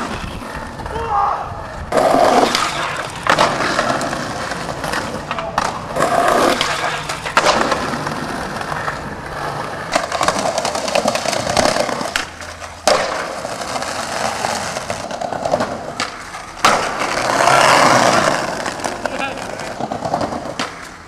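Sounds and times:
skateboard clacking on ground: 0:00.0 - 0:01.0, 0:01.6 - 0:21.0
skateboard wheels rolling on concrete: 0:00.0 - 0:21.0.

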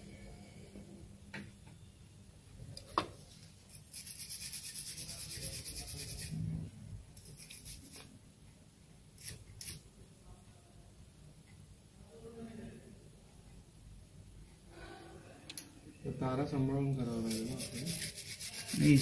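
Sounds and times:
bristle brush scrubbing: 0:03.7 - 0:06.4, 0:17.1 - 0:19.0.

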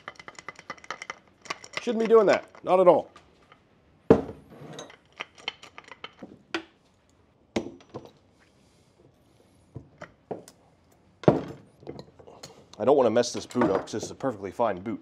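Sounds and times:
metal clicks and clinks: 0:00.0 - 0:02.7.

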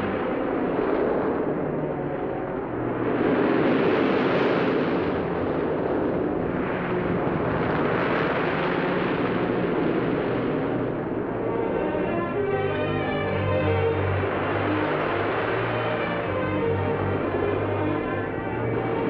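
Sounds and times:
waves crashing on rocky shore: 0:13.6 - 0:18.4.

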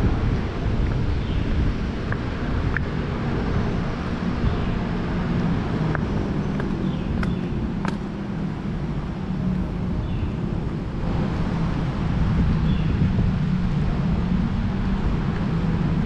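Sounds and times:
city traffic rumble: 0:00.0 - 0:16.0
wind buffeting microphone: 0:00.0 - 0:16.0.

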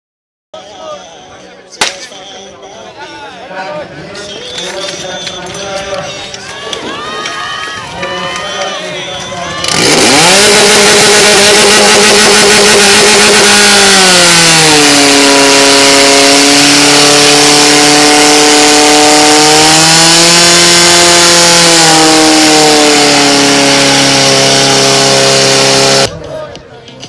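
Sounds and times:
fire pump engine running: 0:08.0 - 0:26.1.

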